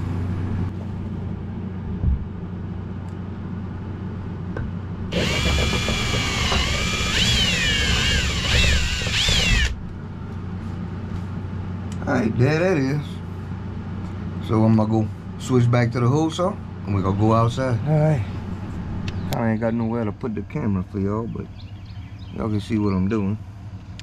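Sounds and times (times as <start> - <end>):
cordless drill whining: 5.1 - 9.8.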